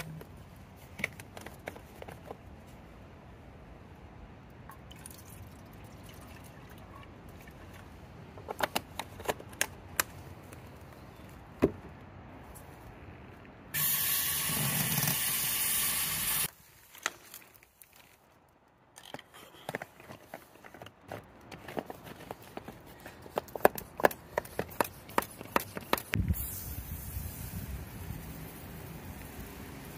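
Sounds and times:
handling clicks and taps: 8.4s - 10.6s, 19.0s - 26.2s
spray bottle hissing: 13.8s - 16.5s, 26.2s - 27.7s.

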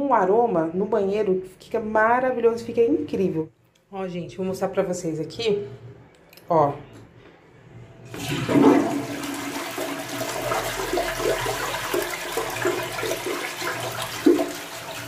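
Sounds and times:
toilet flushing: 8.1s - 15.0s.

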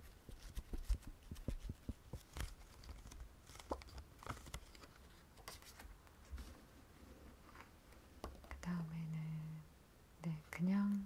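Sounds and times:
faint plastic rustling: 0.0s - 8.6s.

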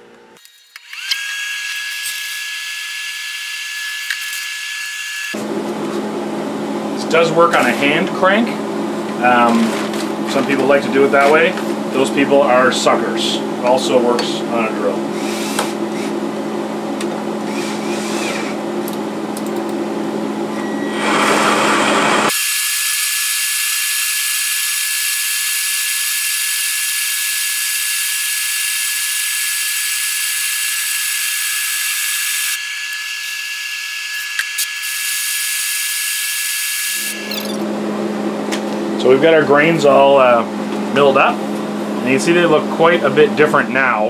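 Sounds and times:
drill whine crushing grain: 0.7s - 5.5s, 17.5s - 18.6s, 20.8s - 37.6s
range hood fan hum: 5.4s - 22.3s, 37.6s - 44.0s.

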